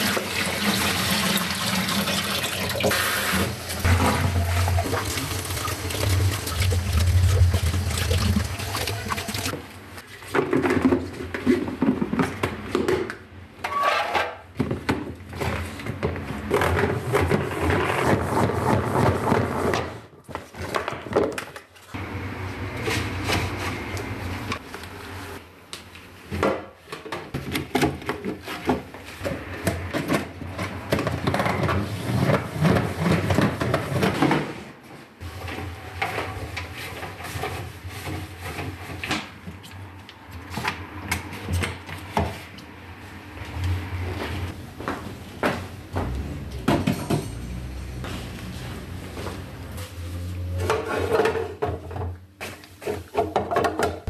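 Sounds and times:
plastic containers clattering: 0:10.2 - 0:13.2, 0:50.5 - 0:54.0.

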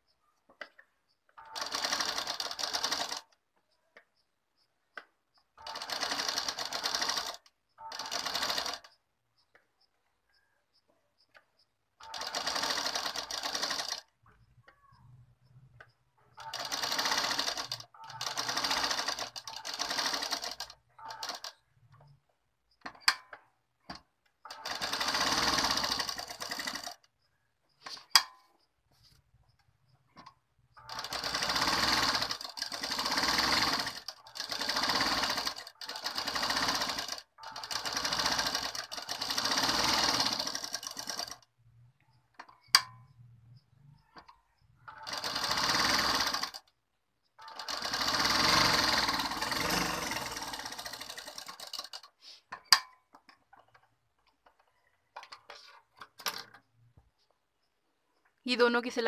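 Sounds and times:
sewing machine stitching: 0:01.4 - 0:03.4, 0:05.5 - 0:09.0, 0:12.0 - 0:22.2, 0:23.9 - 0:27.1, 0:30.1 - 0:41.5, 0:44.0 - 0:46.7, 0:47.4 - 0:52.8.

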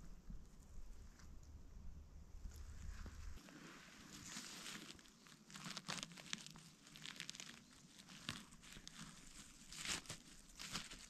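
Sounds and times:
rustling forest floor litter: 0:02.4 - 0:11.0.

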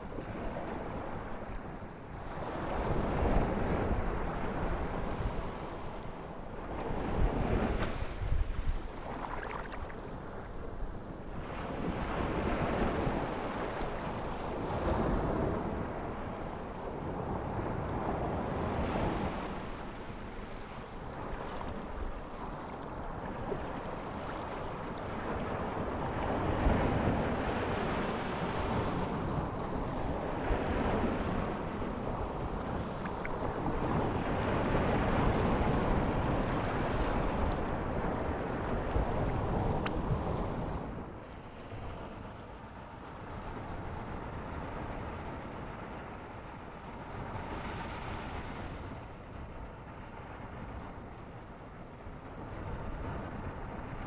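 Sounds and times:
ocean waves breaking: 0:06.6 - 0:10.7.

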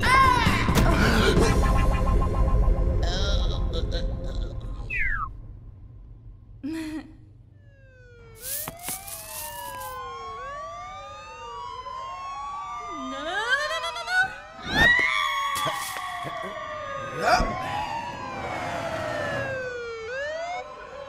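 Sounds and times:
police sirens wailing: 0:07.7 - 0:21.0.

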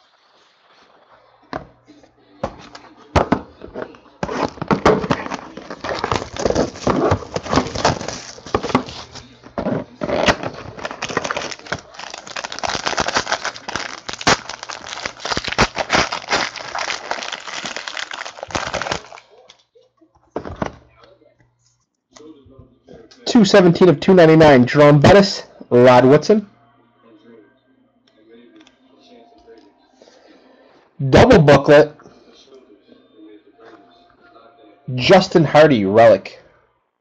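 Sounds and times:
plastic wrap crinkling: 0:03.8 - 0:19.5.

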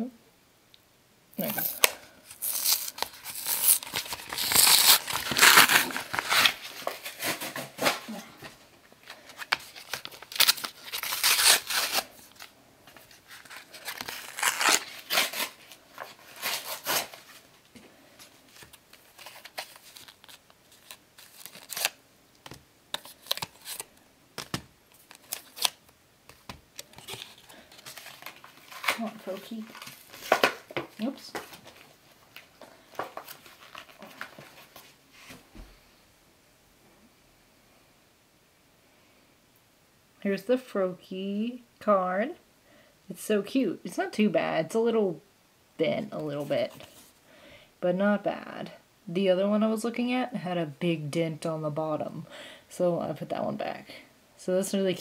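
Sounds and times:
cardboard ripping: 0:01.4 - 0:08.2, 0:09.3 - 0:17.4, 0:18.5 - 0:22.0, 0:22.9 - 0:25.8, 0:26.4 - 0:31.8
plastic crinkling: 0:01.4 - 0:35.0.

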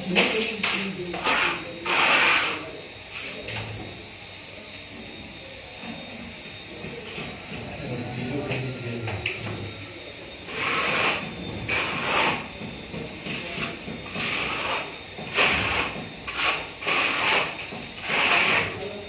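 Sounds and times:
trowel scraping plaster wall: 0:00.1 - 0:03.5, 0:10.5 - 0:12.5, 0:13.3 - 0:19.0.

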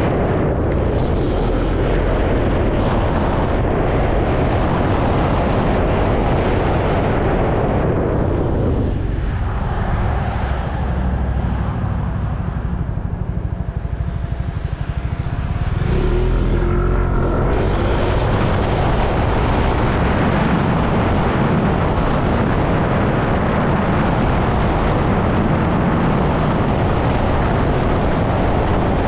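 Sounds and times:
wind rushing over microphone: 0:00.0 - 0:29.0
scooter engine pulsing: 0:10.4 - 0:20.4.

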